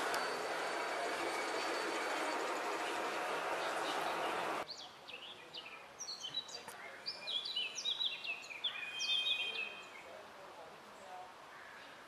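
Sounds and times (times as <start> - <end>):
model train running: 0.0 - 4.6
songbirds singing: 0.0 - 10.2.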